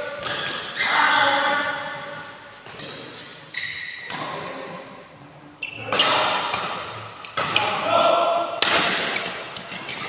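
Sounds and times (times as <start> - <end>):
racket hitting shuttlecock: 0.1 - 0.8, 5.9 - 7.6, 8.6 - 9.6
shoe squeaks: 0.3 - 1.5, 3.2 - 4.1, 5.6 - 6.2, 9.2 - 10.0.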